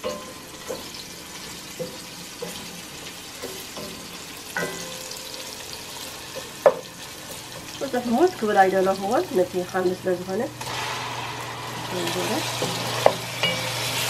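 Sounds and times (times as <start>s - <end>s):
onions sizzling in oil: 0.0s - 14.0s
wooden spoon knocking on pot: 6.6s - 6.9s.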